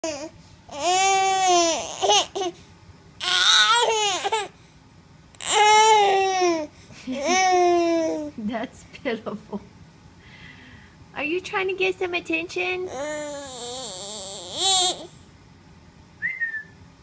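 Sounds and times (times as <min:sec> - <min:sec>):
baby whining cries: 0:00.0 - 0:02.6, 0:03.2 - 0:04.6, 0:05.4 - 0:08.3, 0:12.9 - 0:15.2.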